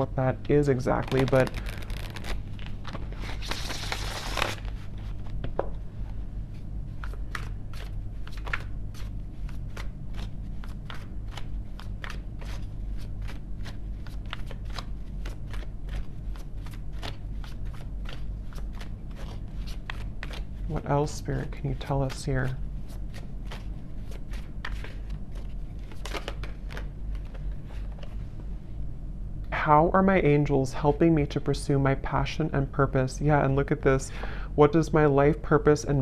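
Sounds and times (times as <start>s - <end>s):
low steady hum: 0.0s - 36.0s
cards being shuffled: 0.5s - 5.7s, 6.5s - 28.3s.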